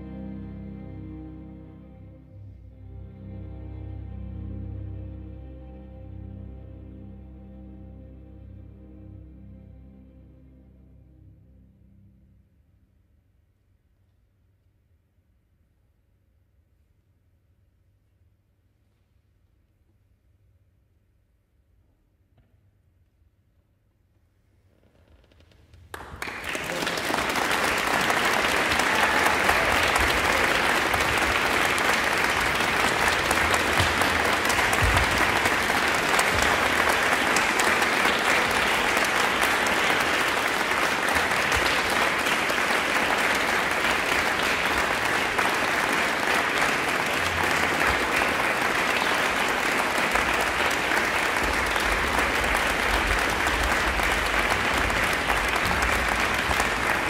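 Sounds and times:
audience applauding: 25.9 - 57.0.

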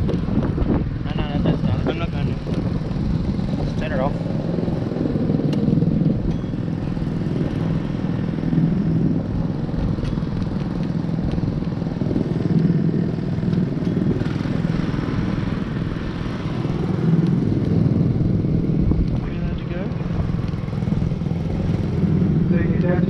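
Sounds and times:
kart engine idling: 2.7 - 22.9.

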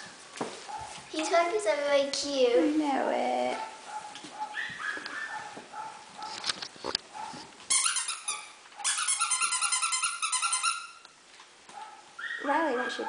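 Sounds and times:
squeaky dog toy squeaking: 7.7 - 11.1.

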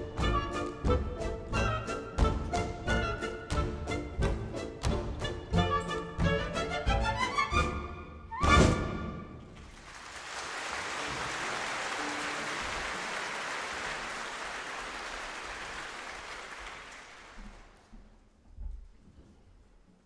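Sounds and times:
audience applause: 9.6 - 17.9.

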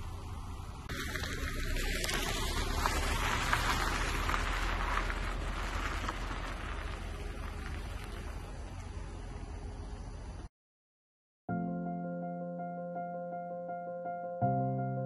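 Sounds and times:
low steady rumble: 0.0 - 10.5
steady rain falling: 0.9 - 9.1.

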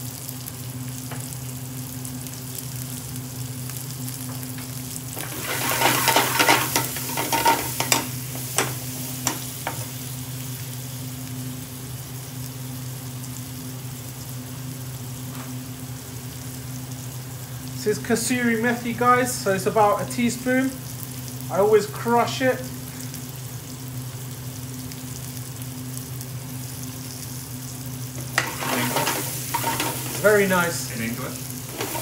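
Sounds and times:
vegetables sizzling in oil: 0.0 - 32.0
metal spoon scraping pan: 5.2 - 9.8, 28.2 - 30.3, 31.7 - 32.0
spoon knocking on pan: 5.8 - 9.9.

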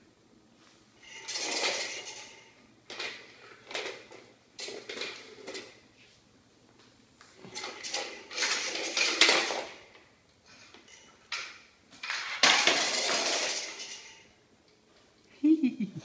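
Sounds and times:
plastic toys clattering on floor: 1.0 - 5.9, 7.4 - 14.4.

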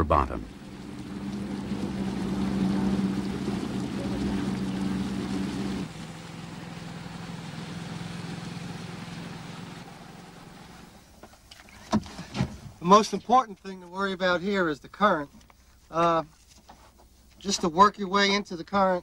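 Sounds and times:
water wash: 0.0 - 11.0
motorboat engine humming: 0.0 - 11.9.

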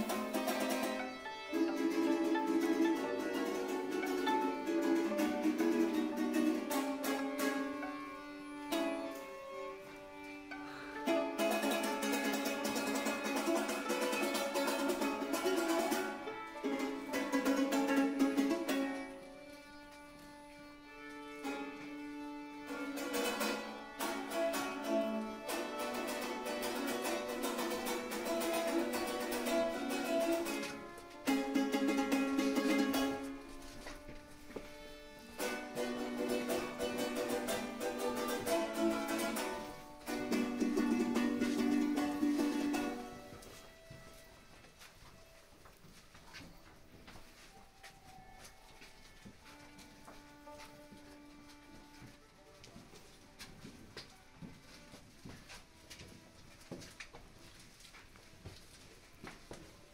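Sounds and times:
panduri strummed: 0.0 - 45.7.

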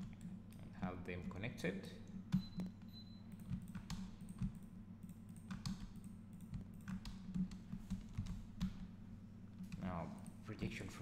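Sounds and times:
steady low hum: 0.0 - 11.0
keyboard and mouse clicks: 2.3 - 8.9.

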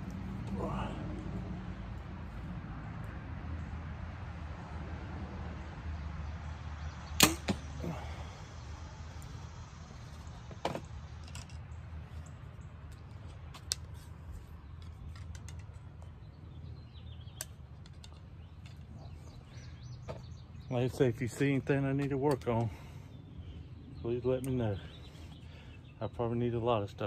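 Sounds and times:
sharp crack: 7.1 - 8.0
bow string snapping: 7.2 - 7.7.

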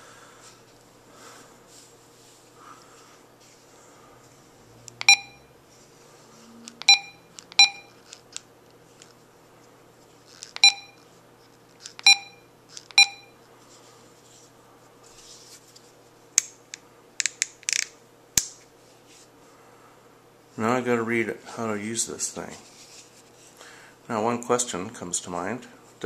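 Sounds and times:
radio key beeps: 13.0 - 13.3.

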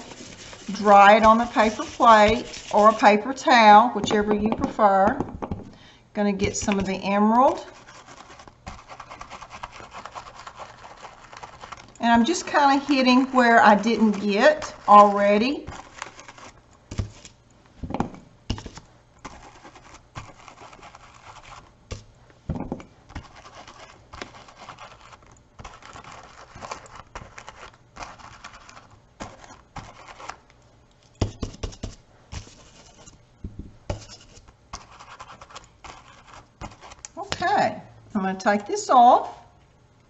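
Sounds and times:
stencil brush scratchy brushing: 0.0 - 4.2, 6.5 - 17.3, 18.5 - 21.7, 23.1 - 30.4, 31.2 - 33.2, 33.9 - 37.3.

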